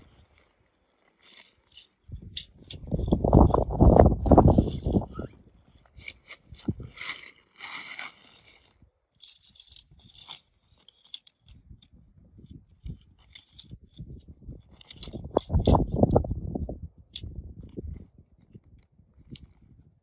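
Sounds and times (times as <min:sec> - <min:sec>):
tent fabric rustling: 0:00.0 - 0:02.1, 0:03.1 - 0:08.8
tent poles clicking and knocking: 0:00.0 - 0:16.3.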